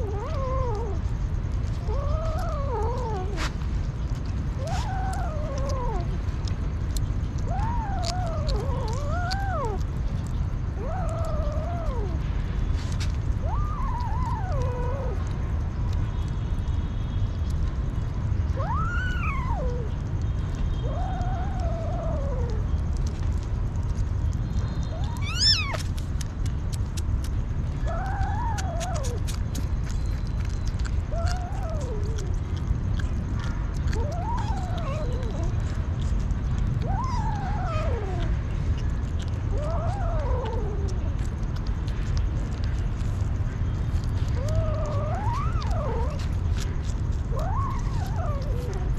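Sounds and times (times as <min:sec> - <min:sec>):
kittens meowing: 0:00.0 - 0:01.1, 0:01.7 - 0:03.6, 0:04.5 - 0:06.3, 0:07.4 - 0:12.2, 0:13.4 - 0:15.3, 0:18.6 - 0:20.0, 0:20.8 - 0:23.0, 0:24.9 - 0:26.3, 0:27.8 - 0:43.3, 0:43.9 - 0:48.9
steady low rumble: 0:00.0 - 0:48.9.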